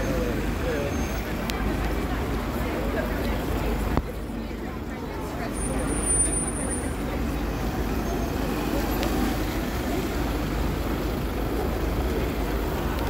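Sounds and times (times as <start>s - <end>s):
traffic on wet road: 0.0s - 13.0s.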